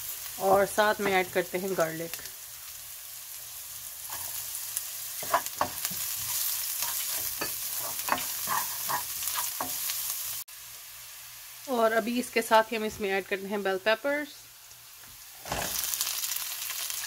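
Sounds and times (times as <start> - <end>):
food sizzling in oil: 0.0 - 17.0
spatula scraping wok: 4.0 - 10.4, 15.4 - 16.1.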